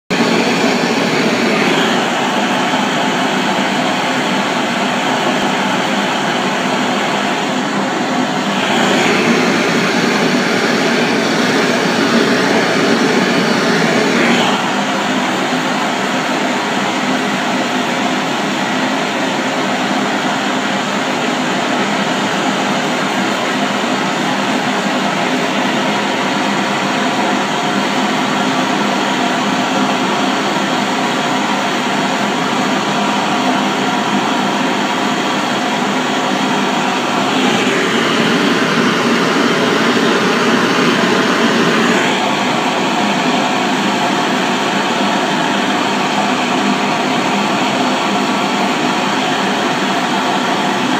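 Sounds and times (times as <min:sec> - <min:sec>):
blowtorch flame hissing: 0:00.1 - 0:15.8, 0:35.0 - 0:45.5.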